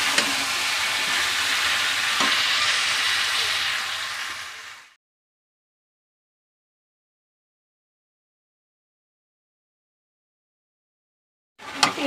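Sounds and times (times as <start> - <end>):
food sizzling in oil: 0.0 - 5.0.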